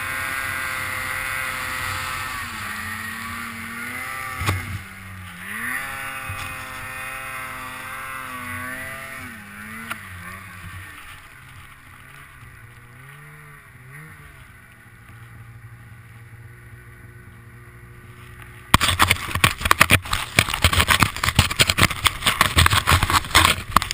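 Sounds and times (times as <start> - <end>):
loud crackling rustling noise: 0.0 - 13.3, 18.1 - 23.9
snowmobile engine revving: 0.0 - 23.9.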